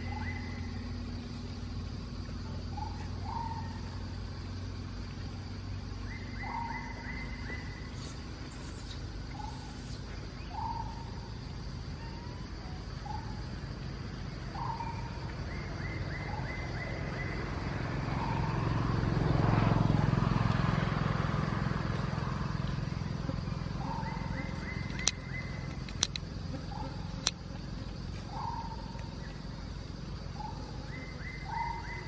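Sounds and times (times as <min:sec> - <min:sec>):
sharp clicks: 0:24.9 - 0:26.2.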